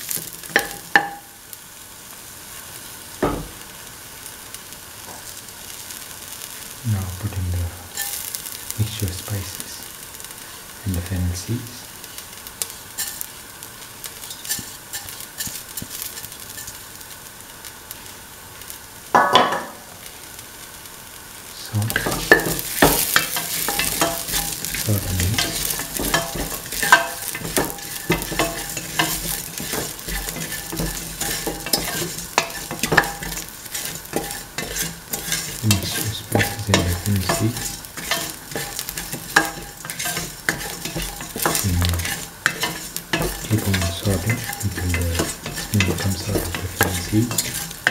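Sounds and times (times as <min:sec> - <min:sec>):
food sizzling in hot oil: 0:00.0 - 0:47.9
utensil scraping metal pan: 0:14.3 - 0:16.7, 0:21.8 - 0:47.9.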